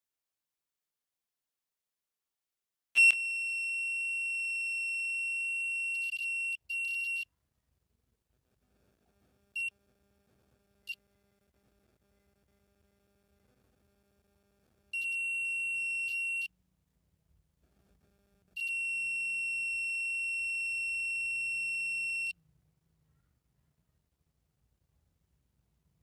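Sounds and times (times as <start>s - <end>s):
high-pitched meter beeps: 14.9s - 16.5s, 18.6s - 22.4s.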